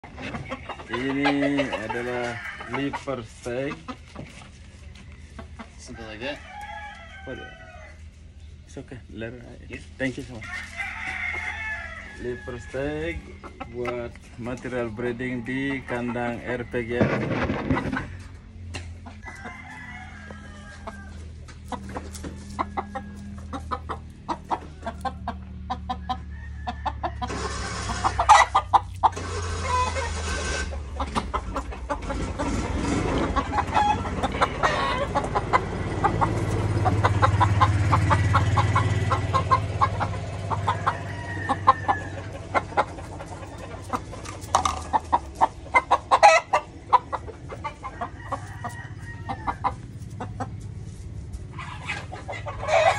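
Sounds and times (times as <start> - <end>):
chickens clucking: 0.0 - 52.9
rooster crowing: 2.0 - 2.9, 6.0 - 8.0, 10.4 - 13.0, 19.1 - 21.4, 25.9 - 28.7, 33.4 - 36.4, 38.3 - 42.6, 47.7 - 49.9, 52.4 - 52.9.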